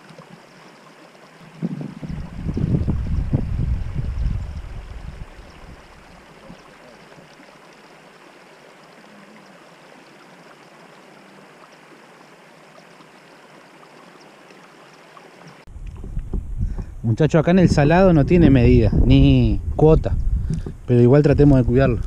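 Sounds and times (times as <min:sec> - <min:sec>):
river water rushing: 0:00.0 - 0:15.7.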